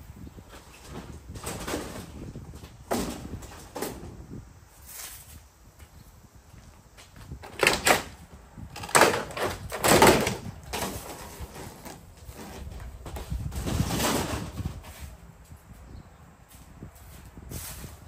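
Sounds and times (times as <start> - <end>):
siding clattering and scraping: 0.4 - 4.2, 7.0 - 15.2.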